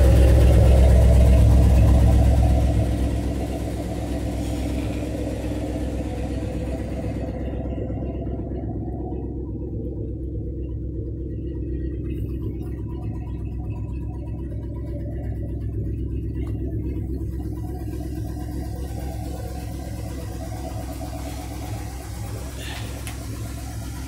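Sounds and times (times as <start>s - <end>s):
pickup engine idling: 0.0s - 24.0s.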